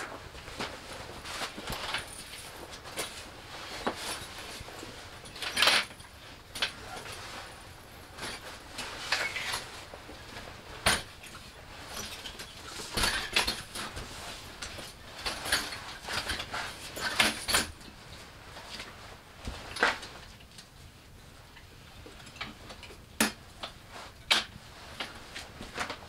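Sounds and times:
metal chair frame clicking and clanking: 0:01.4 - 0:09.8, 0:10.8 - 0:17.9.

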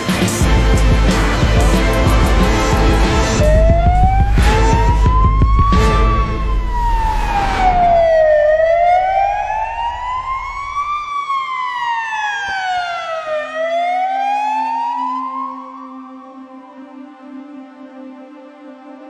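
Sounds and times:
music with thudding beat: 0:00.0 - 0:06.9
emergency siren wailing: 0:00.0 - 0:17.1.

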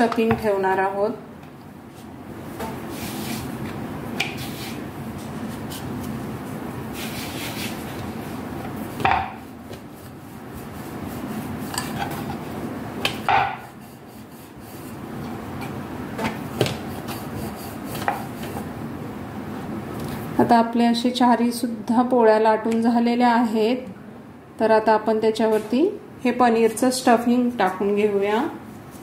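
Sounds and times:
rolling pin rubbing over dough: 0:02.5 - 0:03.7, 0:04.3 - 0:12.6, 0:13.6 - 0:15.3, 0:16.4 - 0:18.8.

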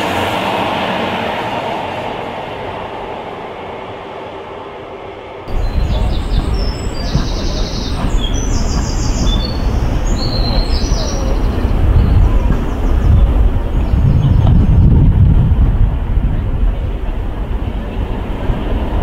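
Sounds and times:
diesel train rumbling past: 0:00.0 - 0:19.0
small birds chirping: 0:05.5 - 0:14.9.

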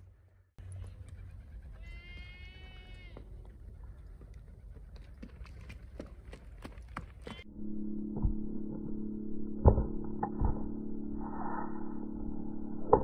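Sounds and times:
horse hooves thudding on dirt: 0:02.1 - 0:07.4
steady low hum: 0:07.4 - 0:13.0.

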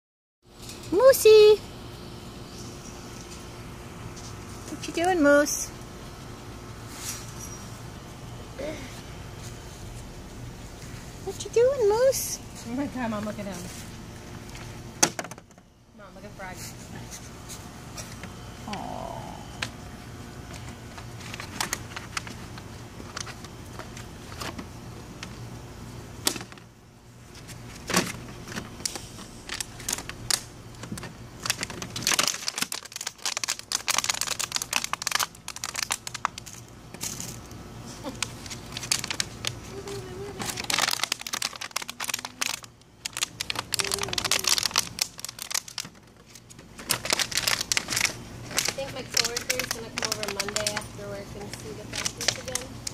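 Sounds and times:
plastic bottle crinkling: 0:27.5 - 0:52.9.

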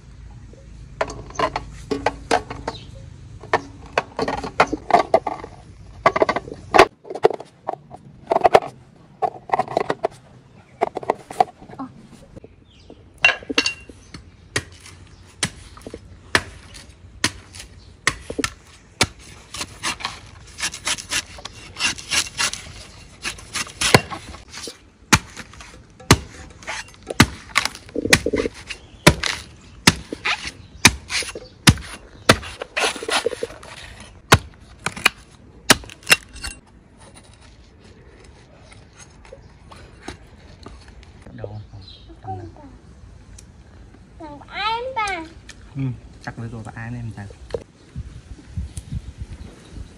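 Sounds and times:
cleaver chopping coconut husk: 0:14.1 - 0:36.3.

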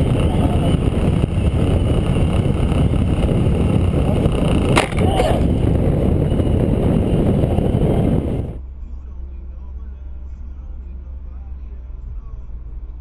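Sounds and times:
wind rush and road noise: 0:00.0 - 0:08.8
sharp thud of impact: 0:04.7 - 0:05.3.

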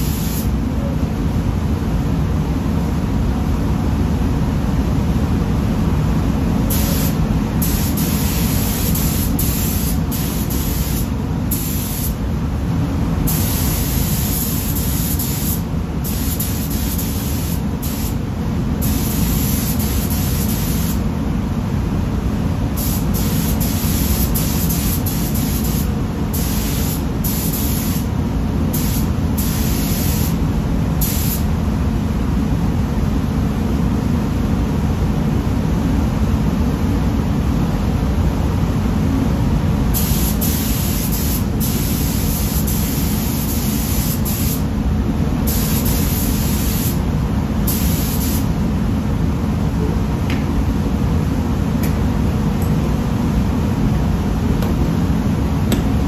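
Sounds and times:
paint spray gun hissing: 0:00.0 - 0:00.5, 0:06.7 - 0:12.2, 0:13.3 - 0:18.2, 0:18.8 - 0:21.0, 0:22.8 - 0:28.1, 0:28.7 - 0:30.4, 0:31.0 - 0:31.4, 0:40.0 - 0:44.7, 0:45.5 - 0:47.0, 0:47.7 - 0:48.5
low rumble of booth air: 0:00.0 - 0:56.0.

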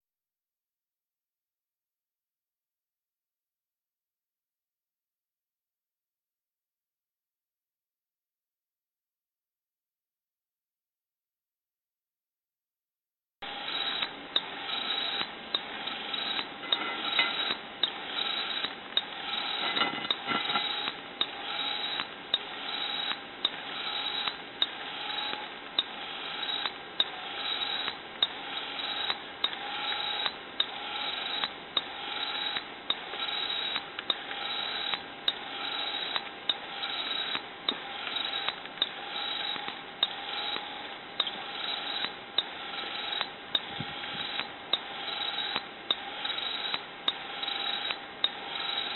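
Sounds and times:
sharp mechanical clicking: 0:13.6 - 0:48.9.

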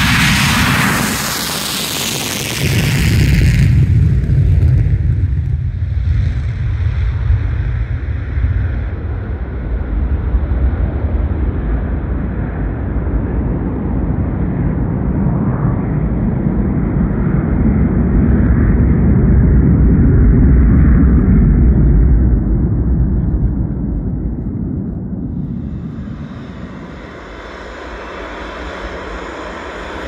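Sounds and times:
high sharp jet roar: 0:00.0 - 0:05.0, 0:21.0 - 0:30.0
jet fighter rumbling: 0:00.0 - 0:30.0.

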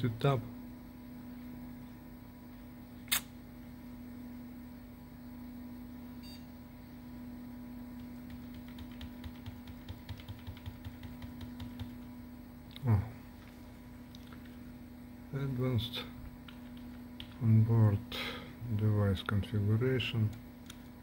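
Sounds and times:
sharp click: 0:03.1 - 0:03.3
faint beep: 0:06.2 - 0:06.5
keyboard key tapped rapidly: 0:08.0 - 0:12.1, 0:16.5 - 0:17.4.

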